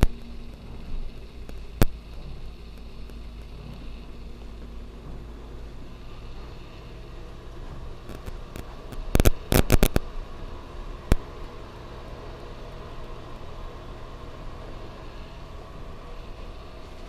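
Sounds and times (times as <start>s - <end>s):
low room hum: 0.0s - 17.0s
sharp clicks and knocks: 7.7s - 10.0s.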